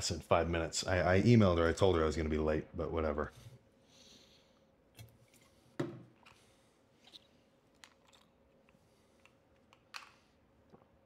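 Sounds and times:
plastic jug set down on counter: 5.8 - 6.1.

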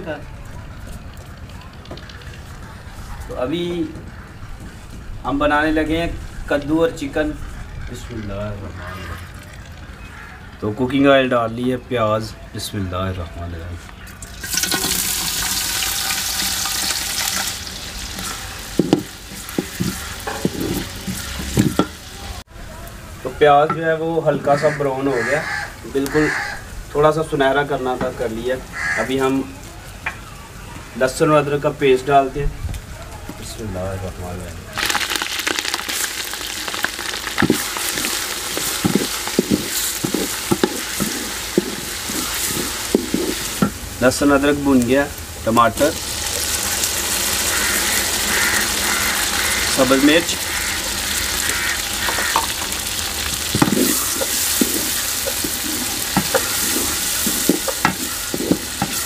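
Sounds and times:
onions sizzling in oil: 14.1 - 30.5, 34.8 - 59.0
wooden spoon knocking on pot: 18.2 - 22.0, 36.8 - 43.8, 51.4 - 59.0.

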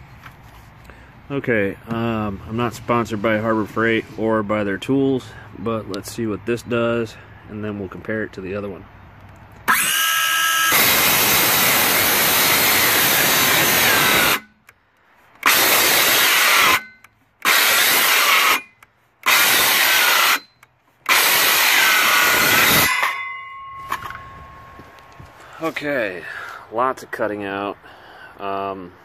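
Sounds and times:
cordless saw cutting wood: 9.7 - 14.5, 15.4 - 23.0.

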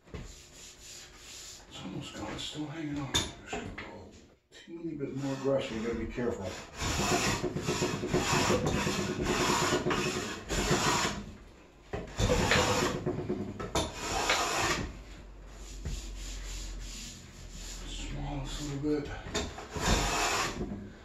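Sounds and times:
hand plane shaving wood: 5.2 - 11.2, 13.9 - 14.8, 19.7 - 20.6.

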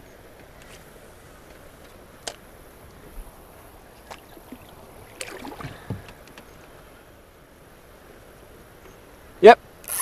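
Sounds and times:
faint river water: 0.0 - 10.0
paddle splashing: 0.6 - 7.0
paddle clicking: 4.0 - 6.8
paddle knocks on canoe: 4.1 - 6.5.

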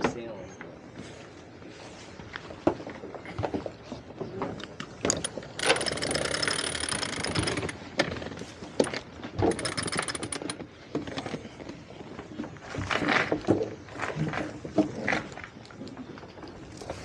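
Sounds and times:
mechanical ratcheting rattle: 5.1 - 7.8, 8.8 - 10.6.

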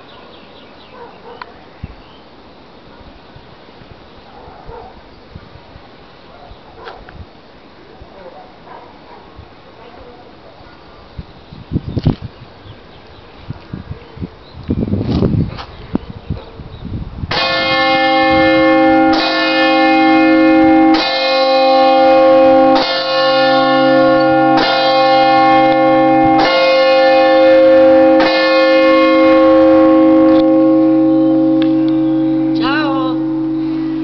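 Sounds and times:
church bell tolling: 17.3 - 34.0.

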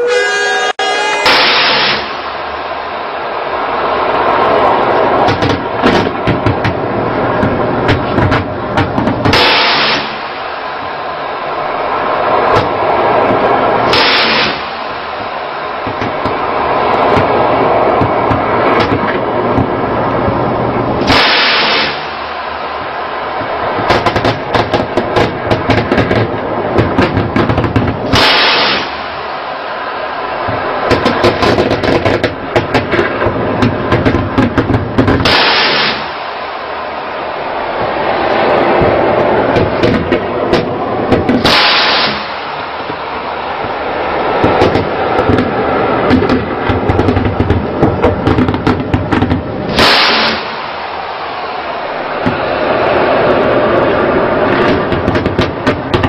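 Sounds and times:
loud blast: 0.0 - 56.0
steady rush of noise: 0.0 - 56.0
gunfire shots and cracks: 7.4 - 10.4, 13.9 - 14.8, 21.0 - 22.2, 23.9 - 29.1, 30.9 - 36.2, 39.6 - 42.6, 48.2 - 50.8.

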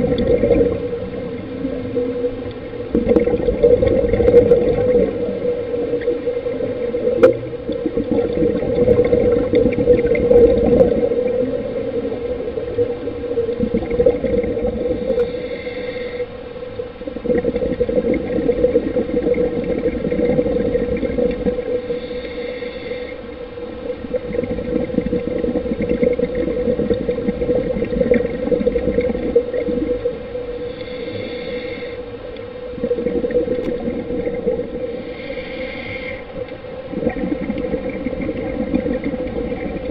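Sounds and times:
exhaled bubbles: 0.0 - 15.6, 17.0 - 22.0, 23.8 - 31.0, 32.7 - 39.9
steady underwater hum: 0.0 - 39.9
scuba regulator breathing: 14.8 - 16.5, 21.6 - 23.5, 30.5 - 32.6, 34.3 - 36.6.

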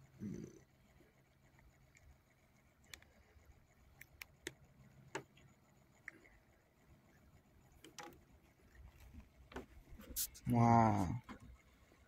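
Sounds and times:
faint scattered clicks: 1.3 - 9.7.

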